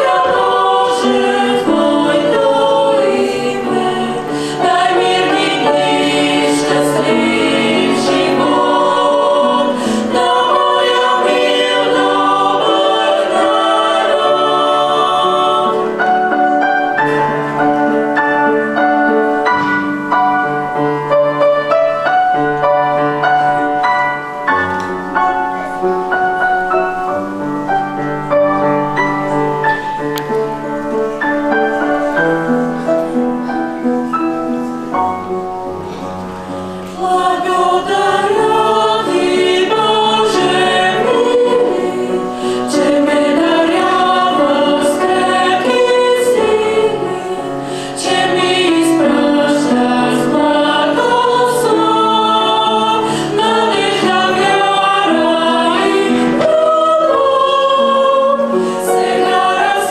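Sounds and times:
youth choir singing: 0.0s - 20.8s, 36.8s - 59.9s.

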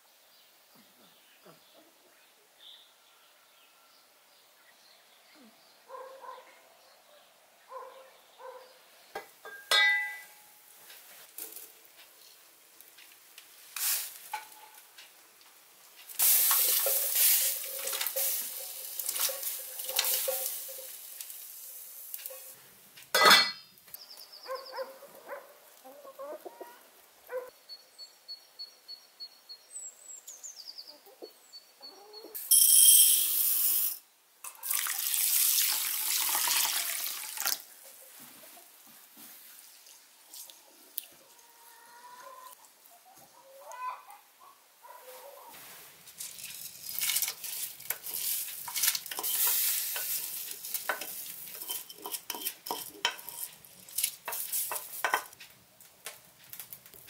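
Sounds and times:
dry rice rattling into bowl: 16.1s - 22.5s, 32.4s - 34.0s, 46.2s - 55.3s
water pouring: 16.1s - 22.5s, 33.3s - 37.7s
pot lid clanking shut: 23.2s - 23.6s.

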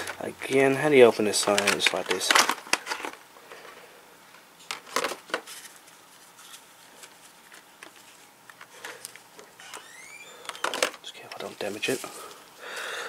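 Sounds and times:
plastic packaging crinkling: 0.0s - 3.2s, 10.5s - 12.8s.

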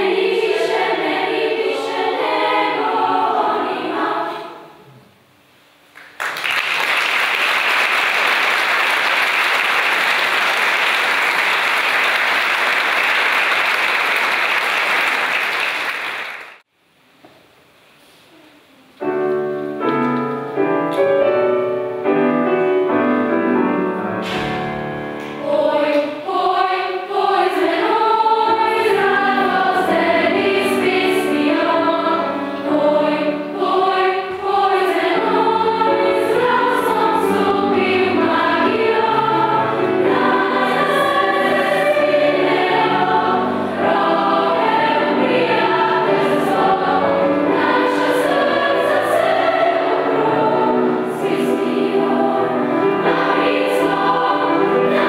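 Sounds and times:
youth choir singing: 0.0s - 5.0s, 25.2s - 55.0s
audience applause: 6.0s - 16.6s
piano playing: 19.0s - 25.6s, 27.7s - 55.0s.

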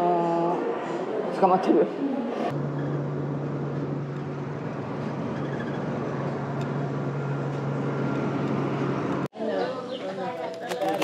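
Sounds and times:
road and tyre noise: 0.1s - 9.3s
van engine hum: 2.5s - 9.3s.

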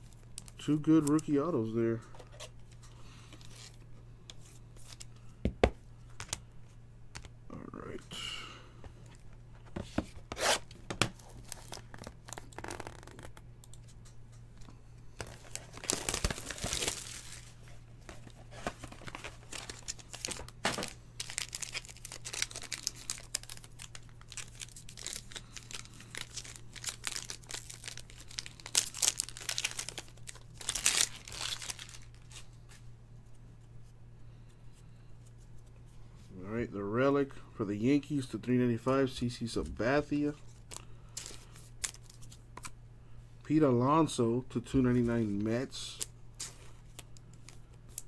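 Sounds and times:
plastic wrapper tearing and crinkling: 11.2s - 13.4s, 15.2s - 17.6s, 18.6s - 32.3s, 40.7s - 42.4s.

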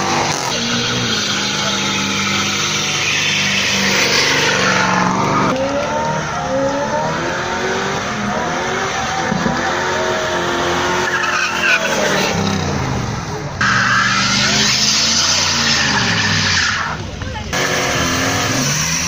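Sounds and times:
tyres squealing: 0.0s - 5.5s, 10.8s - 12.7s, 13.6s - 17.1s
car engine at high revs: 0.0s - 19.0s.

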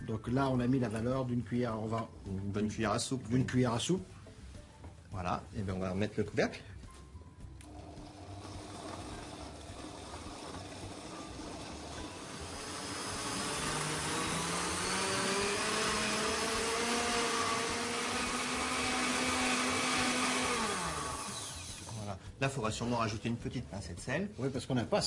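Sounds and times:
blender running: 7.6s - 22.1s.

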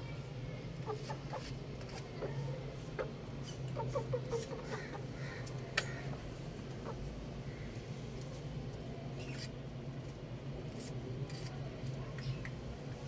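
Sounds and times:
roosters clucking softly: 0.8s - 7.8s.

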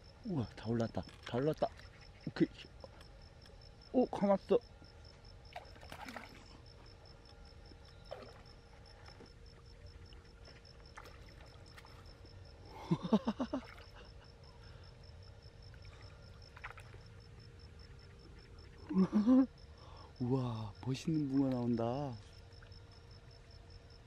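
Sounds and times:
insect trill: 0.0s - 24.0s
fish splashing at the surface: 5.5s - 6.5s.

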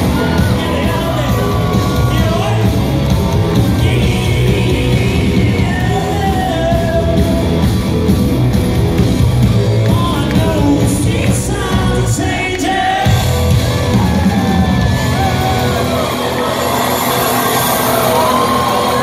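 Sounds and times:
singer singing and shouting: 0.0s - 8.0s, 9.4s - 16.3s
live rock band playing: 0.0s - 19.0s.

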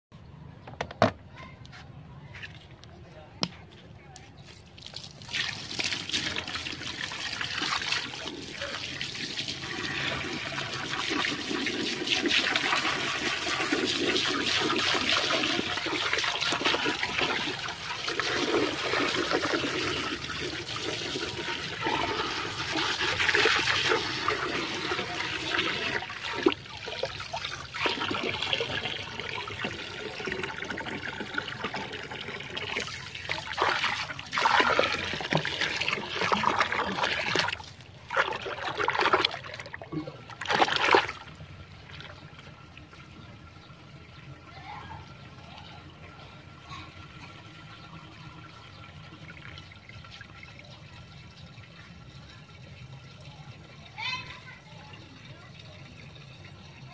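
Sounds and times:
water splashing into toilet bowl: 4.8s - 42.5s
water sloshing: 12.7s - 43.2s.

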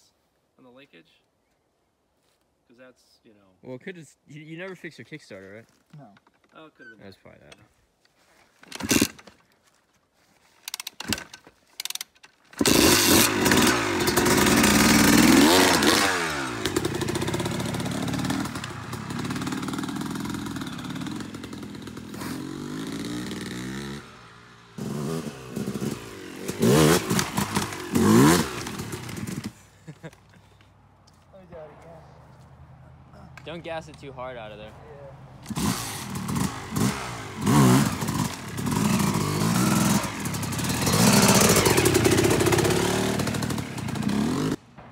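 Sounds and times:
dirt bike engine revving: 12.6s - 29.7s, 35.4s - 44.6s.

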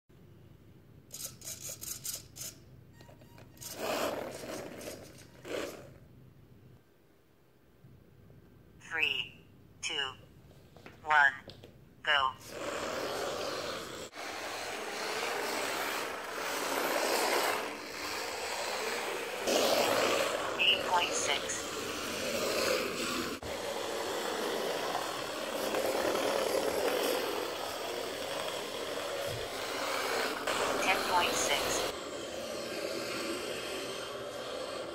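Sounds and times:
toy car motor whirring: 1.1s - 6.0s, 12.4s - 20.7s, 21.4s - 34.9s
wheels rolling on wooden floor: 1.1s - 6.1s, 12.4s - 34.9s.

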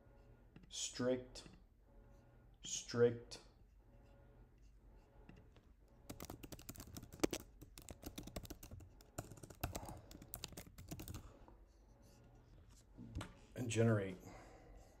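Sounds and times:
typing on computer keyboard: 6.1s - 11.3s.

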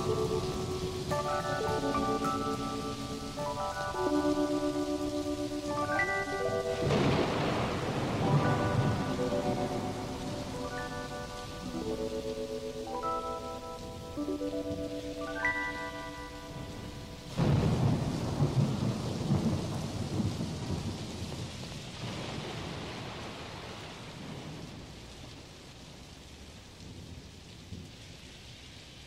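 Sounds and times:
thunderclap rumbling: 0.0s - 12.5s, 16.6s - 25.5s
sustained keyboard notes: 0.0s - 17.4s
steady rain hiss: 0.0s - 29.0s.

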